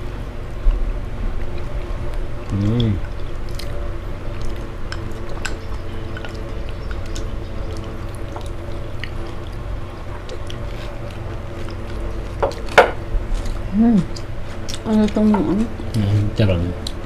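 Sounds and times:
low hum: 0.0 - 17.0
slurping and chewing noodles: 2.5 - 14.9.

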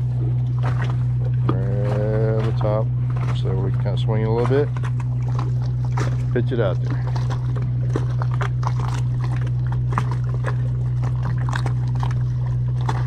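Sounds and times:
boat machinery humming: 0.0 - 13.0
water lapping against hulls: 0.0 - 13.0.

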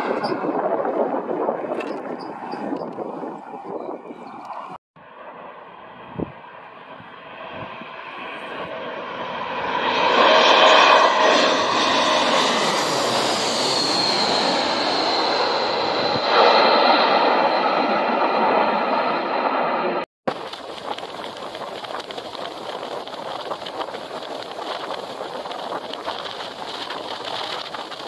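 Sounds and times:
jet airliner passing overhead: 0.0 - 28.0
jet engine whine: 0.0 - 28.0.

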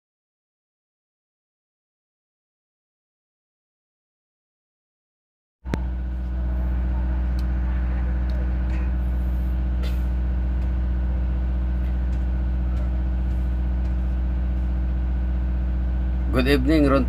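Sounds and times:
engine humming: 5.7 - 17.0.

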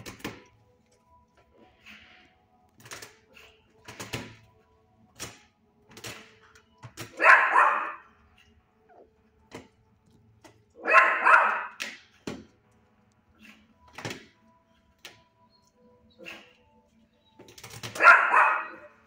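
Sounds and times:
dogs barking: 7.0 - 9.1, 10.8 - 11.9, 17.7 - 19.0.

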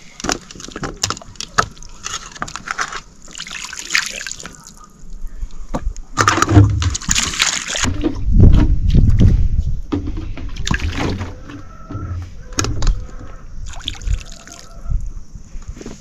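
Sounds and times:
water sloshing and splashing: 0.0 - 5.2, 6.2 - 9.3, 9.9 - 13.0, 13.6 - 14.7.

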